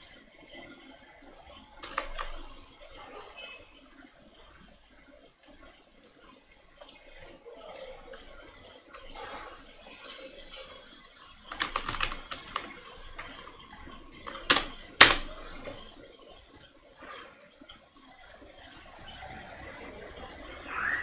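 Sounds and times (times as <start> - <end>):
computer keyboard key presses: 1.8 - 2.8, 11.2 - 15.8
mouse clicks: 1.8 - 2.8, 11.2 - 15.9, 16.5 - 16.8, 20.2 - 20.5.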